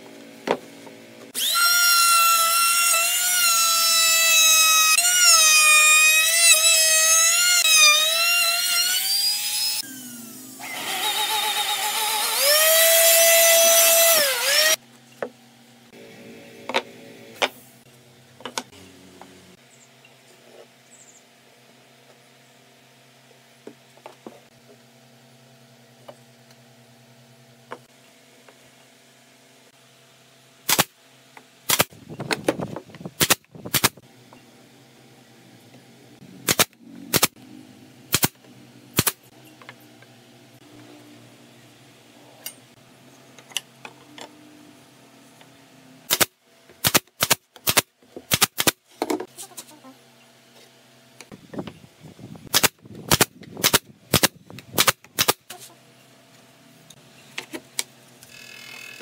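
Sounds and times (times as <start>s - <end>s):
nail gun firing into wood: 30.7s - 30.9s, 31.7s - 31.9s, 33.2s - 34.0s, 36.4s - 37.4s, 38.1s - 38.4s, 39.0s - 39.2s, 46.1s - 48.8s, 52.5s - 55.4s.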